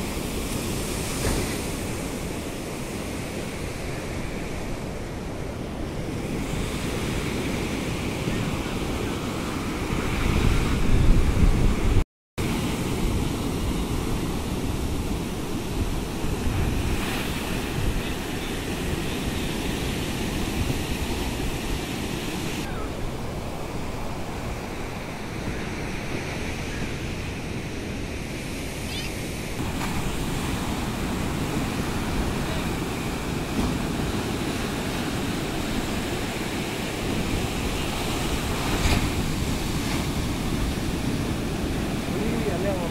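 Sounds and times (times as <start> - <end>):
wind buffeting microphone: 0.0 - 28.1
ocean surf breaking on beach: 0.0 - 42.9.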